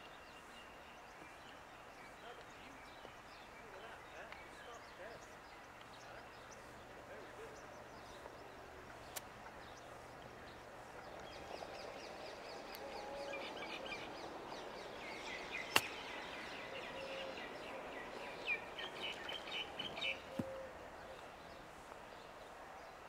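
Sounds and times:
lower bird calls: 0:00.0 - 0:22.9
birds chirping: 0:00.0 - 0:23.0
golf club striking ball: 0:15.7 - 0:16.2.

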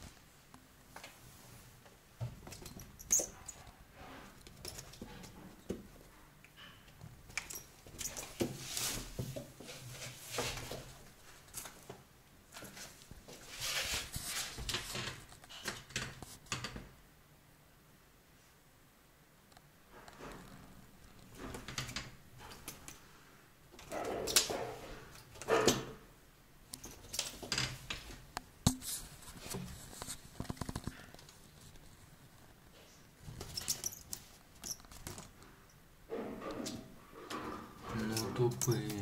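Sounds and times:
rustling: 0:07.0 - 0:16.4.

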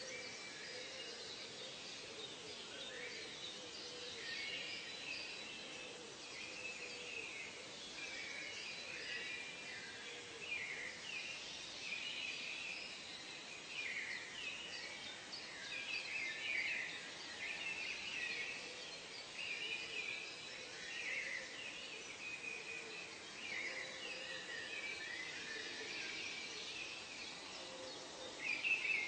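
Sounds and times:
background hiss: 0:00.0 - 0:29.0.

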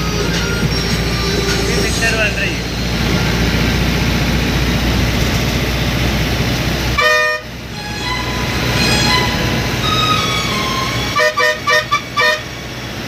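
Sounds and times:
bus engine running: 0:00.0 - 0:13.0
horn blast: 0:07.0 - 0:12.8.

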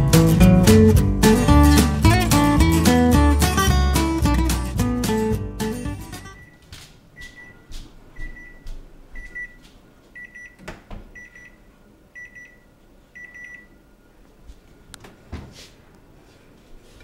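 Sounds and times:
microwave timer beeping: 0:06.1 - 0:06.6, 0:07.2 - 0:09.6, 0:10.2 - 0:13.9
light footsteps: 0:06.4 - 0:10.2, 0:14.2 - 0:17.0.

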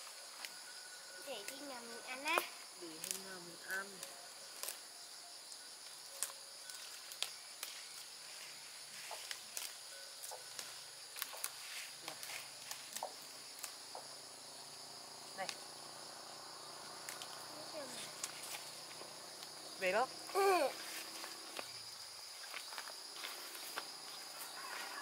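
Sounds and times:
insect chorus with crickets: 0:00.0 - 0:25.0
hands picking leafy plants: 0:06.2 - 0:14.2, 0:17.0 - 0:19.6.

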